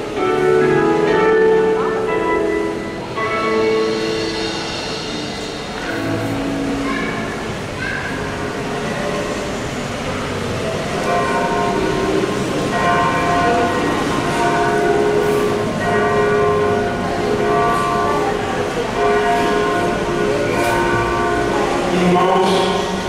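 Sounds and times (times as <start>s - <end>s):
slow music of held notes: 0.0s - 7.6s.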